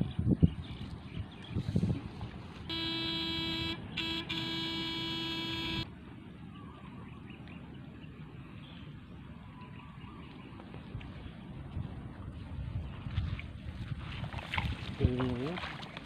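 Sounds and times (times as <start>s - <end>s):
electrofishing unit buzzing: 2.7s - 5.9s
footsteps in wet grass and mud: 10.6s - 16.0s.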